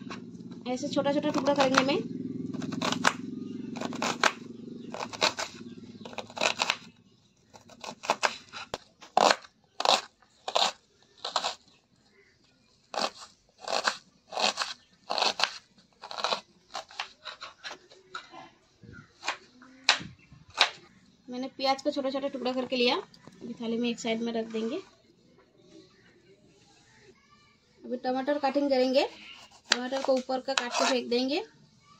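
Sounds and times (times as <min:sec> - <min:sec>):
knife slicing onion on board: 0:02.6 - 0:03.2, 0:12.9 - 0:18.2, 0:29.4 - 0:31.0.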